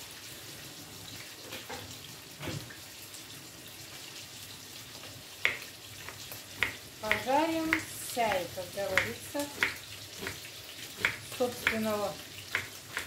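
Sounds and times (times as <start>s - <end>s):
chicken sizzling in oil: 0.0s - 13.0s.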